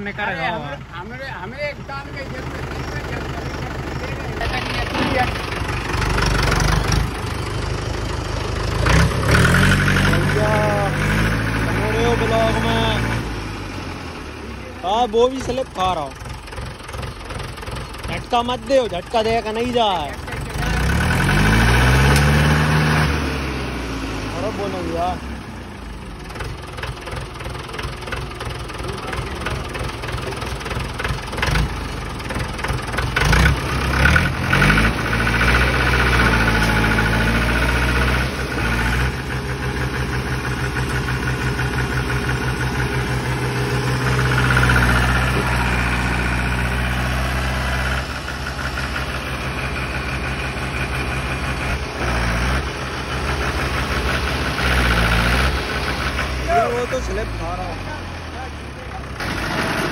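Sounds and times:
diesel tractor engine chugging: 0.0 - 59.9.

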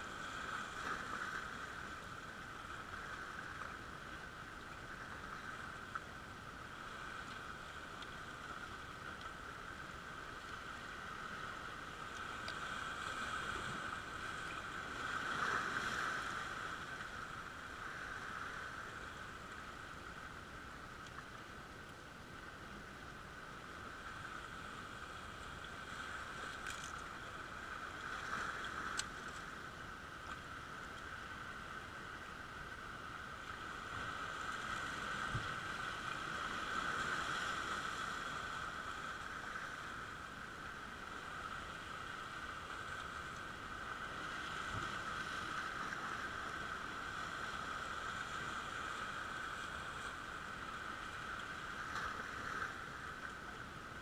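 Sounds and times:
sea waves washing over rocks: 10.6 - 19.1.

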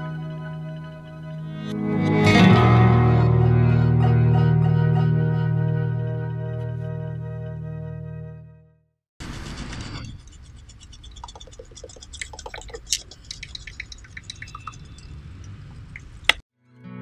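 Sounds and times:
toy boat boiler popping: 10.6 - 16.4.

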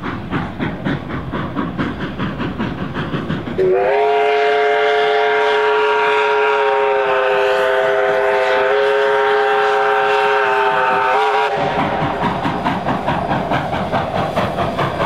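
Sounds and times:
steam whistle blast: 3.6 - 11.8.

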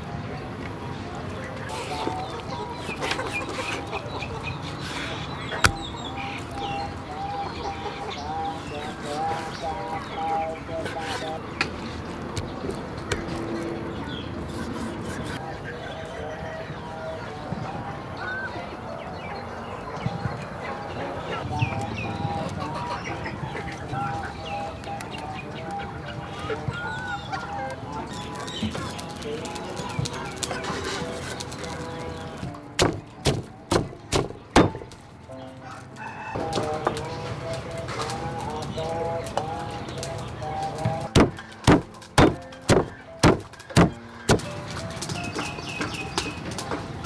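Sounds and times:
birds chirping: 0.0 - 47.0
chickens clucking: 0.0 - 47.0
knife striking cutting board: 5.6 - 5.8, 32.8 - 34.8, 41.2 - 44.4.

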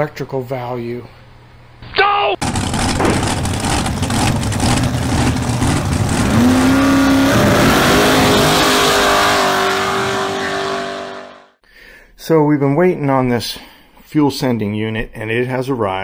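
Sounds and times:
car engine revving: 2.4 - 11.5.

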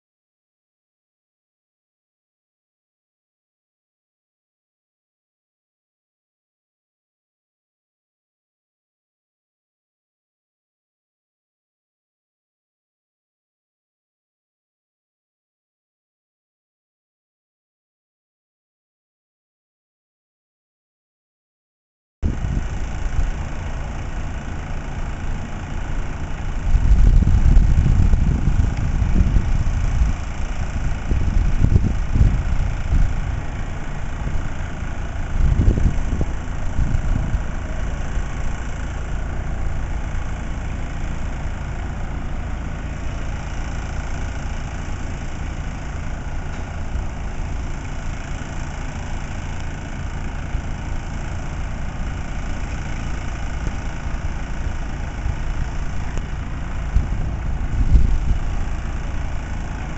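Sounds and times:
machinery engine hum: 22.2 - 59.9
low rumbling: 25.9 - 38.6, 56.8 - 59.4.

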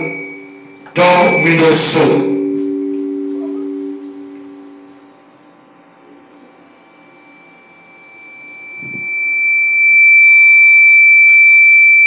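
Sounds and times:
high-pitched microphone feedback squeal: 0.0 - 12.0.

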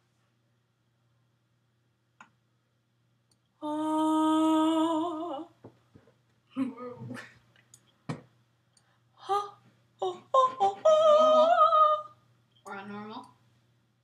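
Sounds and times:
girl singing long note: 3.6 - 5.6, 9.2 - 12.2.

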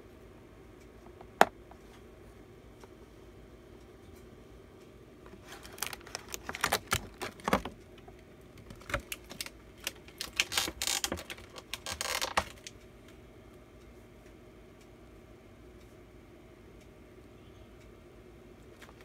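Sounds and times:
plastic packaging crinkling: 5.3 - 7.8, 8.6 - 12.7.

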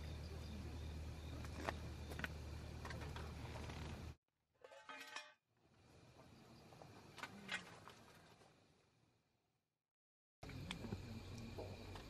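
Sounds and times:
gas camping burner rumbling: 0.0 - 4.2, 10.4 - 12.0.

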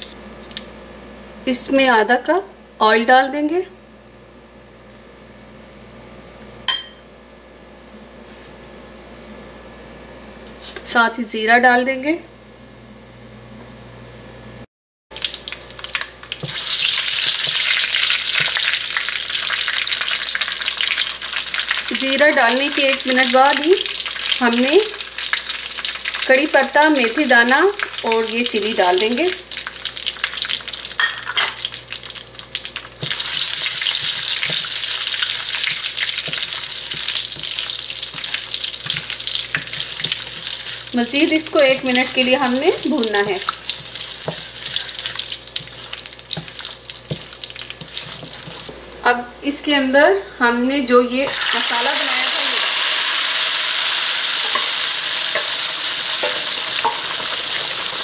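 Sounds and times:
seeds crackling in hot oil: 15.1 - 48.8, 51.2 - 58.0
loud steady sizzle: 15.1 - 49.6, 51.1 - 58.0
spatula knocking on pan: 35.4 - 40.8, 43.3 - 48.7, 56.2 - 57.2.

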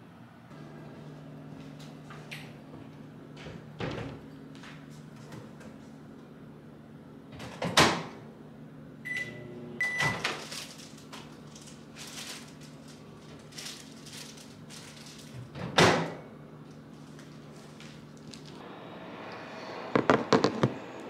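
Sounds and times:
short keypad beeps: 9.1 - 10.2.

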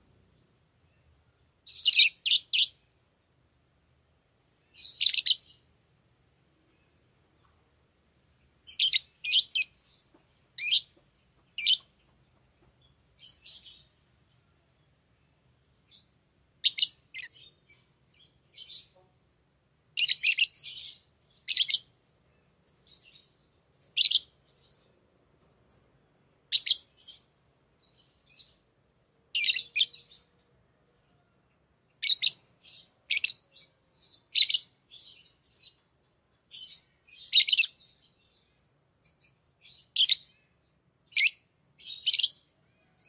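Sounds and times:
parrots chirping: 1.6 - 2.8, 4.7 - 5.6, 8.6 - 10.0, 10.6 - 11.9, 16.6 - 19.0, 20.0 - 21.9, 22.6 - 24.8, 29.3 - 30.3, 32.0 - 35.7, 36.5 - 38.1, 41.1 - 42.4.

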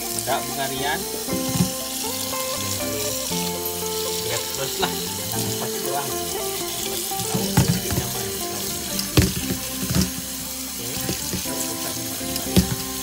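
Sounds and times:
tap water running into colander: 0.0 - 13.0.

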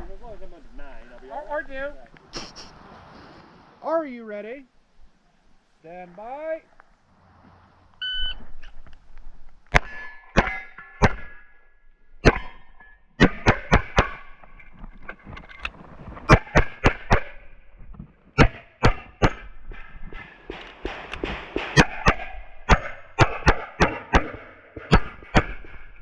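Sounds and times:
pistol gunshots: 20.4 - 25.8.

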